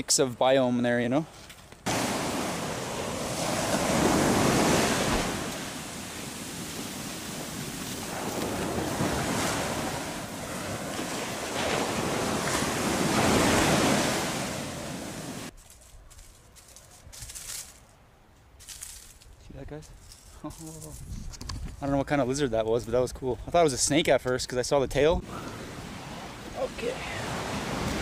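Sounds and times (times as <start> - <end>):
sea surf breaking on beach: 1.9 - 15.5, 25.2 - 28.0.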